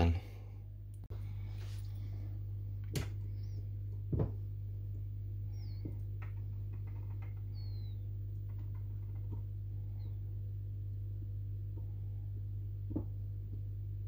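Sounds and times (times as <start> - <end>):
low hum: 0.0 - 14.0
faint high falling chirps: 7.4 - 8.1.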